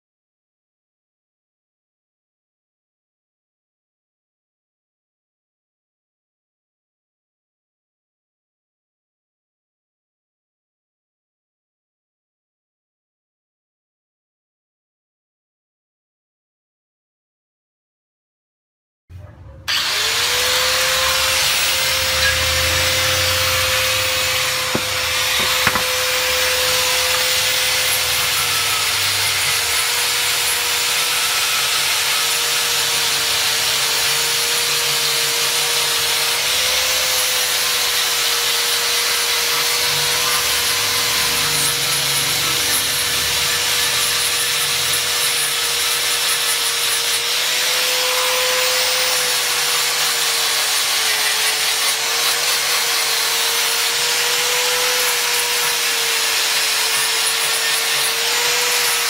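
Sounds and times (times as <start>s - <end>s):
angle grinder sanding wood: 19.7s - 59.0s.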